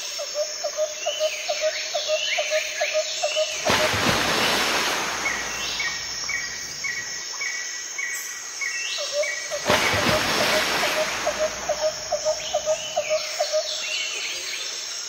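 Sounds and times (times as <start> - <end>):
rush of noise: 3.6 - 7.0.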